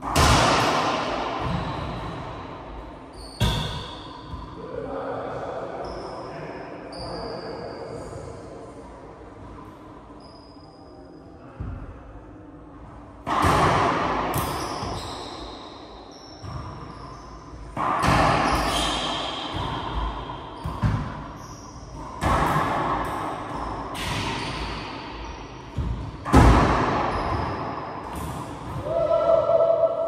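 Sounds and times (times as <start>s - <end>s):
racquetball smacks echoing: 0.0s - 2.3s, 17.8s - 21.2s.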